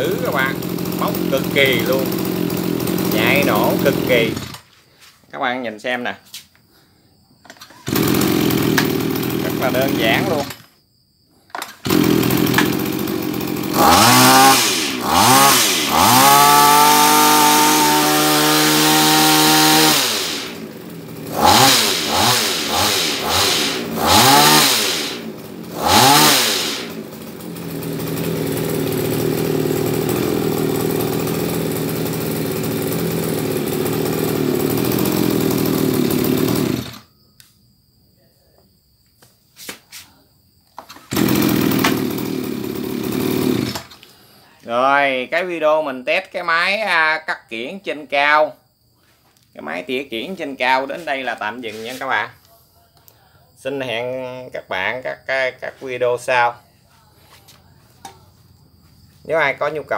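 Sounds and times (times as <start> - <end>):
hedge trimmer engine revving: 0.0 - 4.8, 7.5 - 10.7, 11.5 - 37.1, 40.8 - 44.3.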